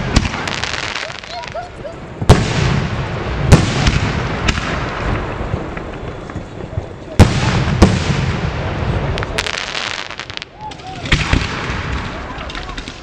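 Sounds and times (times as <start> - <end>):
firework bangs: 0.0 - 13.0
lingering rumble: 0.0 - 13.0
smaller firework reports: 0.0 - 13.0.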